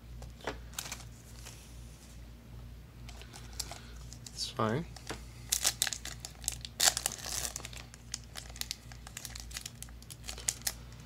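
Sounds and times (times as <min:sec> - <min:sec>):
foil wrapper crinkling and tearing: 0:03.1 - 0:10.9.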